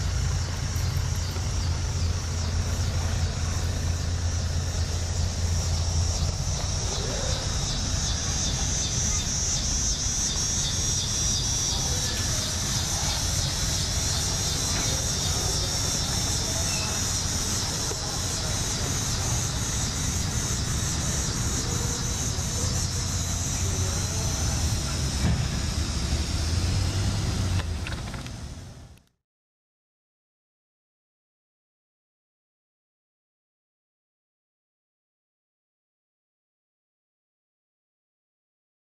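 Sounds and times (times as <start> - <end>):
insects chirring: 0.0 - 28.3
tractor engine low rumble: 0.0 - 29.0.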